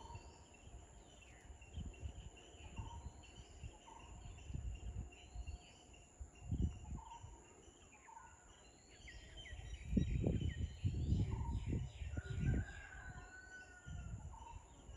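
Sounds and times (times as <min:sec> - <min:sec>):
birds chirping: 0:00.0 - 0:14.9
insect drone: 0:00.0 - 0:14.9
low rumbles on microphone: 0:09.8 - 0:13.2.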